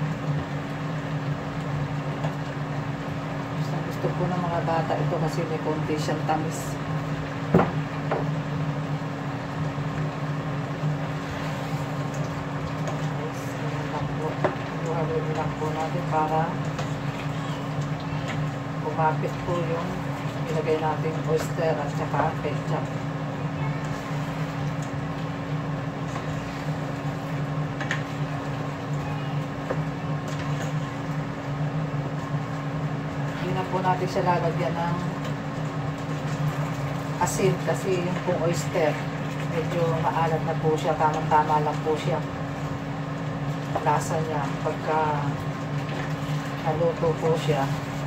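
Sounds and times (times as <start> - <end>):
shrimp cooking in sauce: 0.0 - 3.6, 6.8 - 21.5, 22.3 - 33.4, 35.1 - 37.2, 42.2 - 43.8
low mechanical hum: 0.0 - 48.0.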